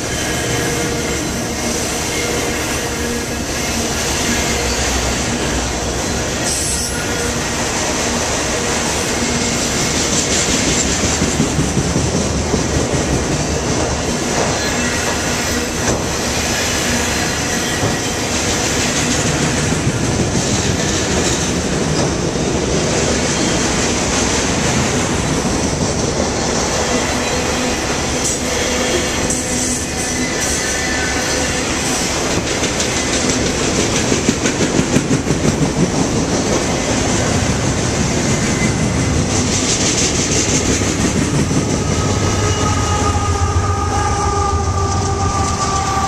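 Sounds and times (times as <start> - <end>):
high wheel squeal: 0.0 - 11.1, 14.0 - 19.4, 26.9 - 33.4, 38.0 - 40.6, 41.5 - 46.0
steel train wheels on rails: 0.0 - 46.0.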